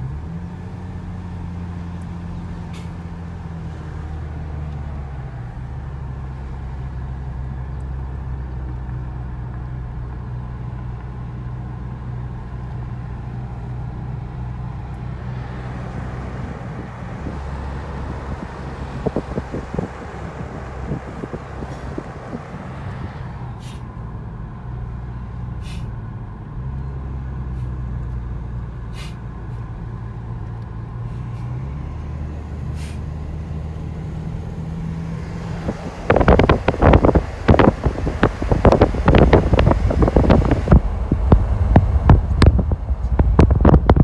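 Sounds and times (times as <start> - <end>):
car engine and road hum: 0.0 - 44.0
wind buffeting microphone: 14.7 - 23.6, 34.9 - 44.0.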